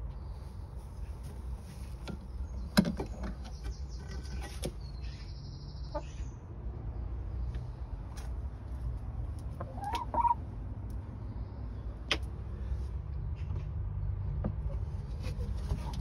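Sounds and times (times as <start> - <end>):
hen clucking: 5.8 - 6.3, 9.4 - 10.5.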